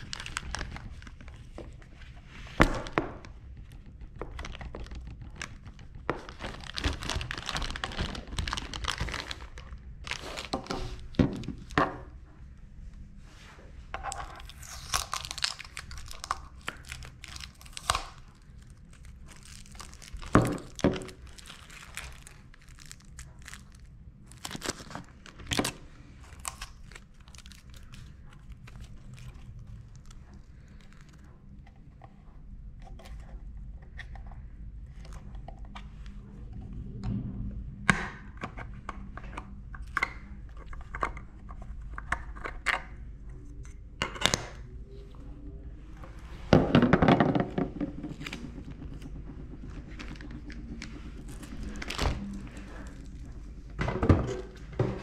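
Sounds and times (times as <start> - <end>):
plastic packaging crinkling: 0.0 - 2.0, 4.2 - 11.8, 14.1 - 31.2, 47.4 - 55.0.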